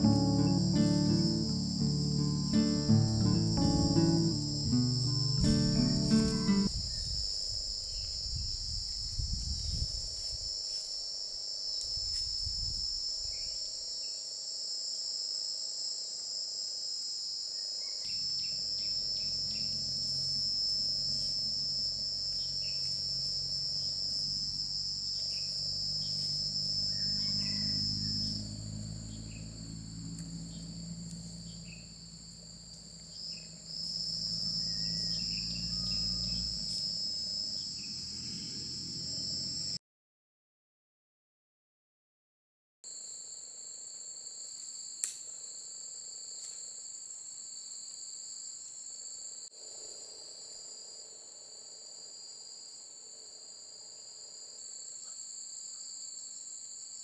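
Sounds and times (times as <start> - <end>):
insect chorus buzzing: 0.0 - 39.8, 42.9 - 57.0.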